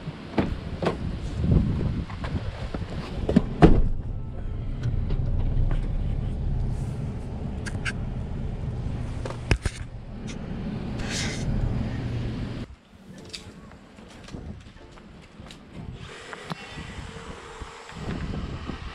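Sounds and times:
door slamming: 0:03.4 - 0:04.2
truck engine idling: 0:03.5 - 0:12.7.

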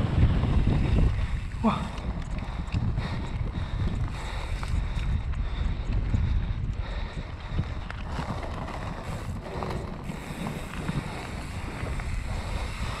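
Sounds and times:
wind buffeting microphone: 0:00.0 - 0:13.0
bike knocks and rattles: 0:07.8 - 0:13.0.

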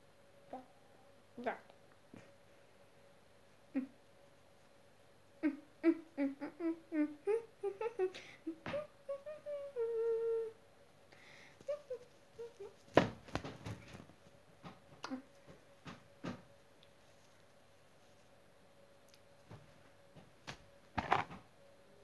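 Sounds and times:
girl humming: 0:03.7 - 0:04.0, 0:05.4 - 0:10.6, 0:11.6 - 0:12.9, 0:15.0 - 0:15.4
loud thump near microphone: 0:13.0 - 0:13.7.

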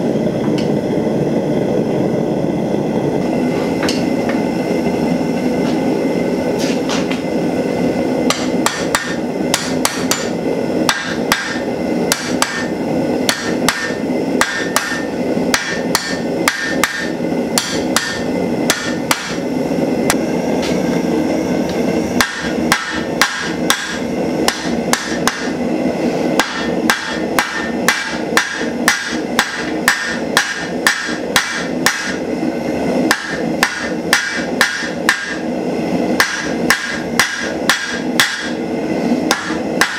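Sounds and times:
steady burner roar: 0:00.0 - 0:39.9
hammer striking hot steel on anvil: 0:03.8 - 0:04.4, 0:08.2 - 0:19.5, 0:21.7 - 0:25.6, 0:26.2 - 0:32.4, 0:33.0 - 0:35.5, 0:36.1 - 0:39.9
anvil ringing: 0:08.3 - 0:12.7, 0:13.3 - 0:19.4, 0:22.2 - 0:25.5.

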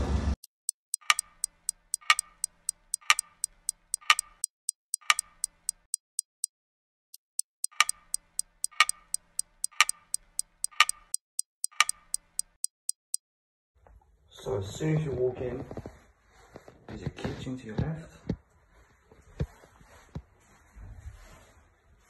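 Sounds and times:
clock ticking: 0:00.4 - 0:13.2.

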